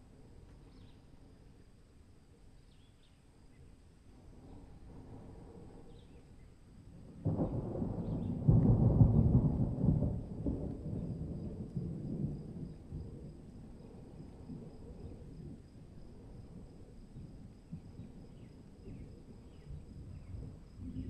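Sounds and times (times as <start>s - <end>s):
thunder crack and rumble: 7.0s - 21.0s.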